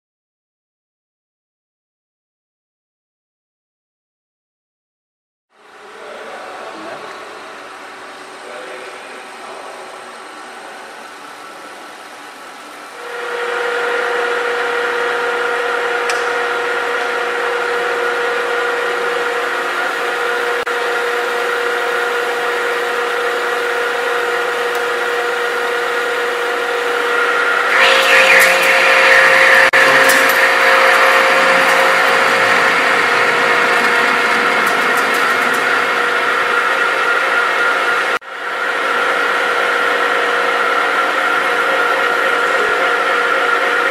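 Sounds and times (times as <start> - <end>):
lathe running with gear whine: 12.9 - 43.9
lathe tool cutting steel: 16.9 - 38.2.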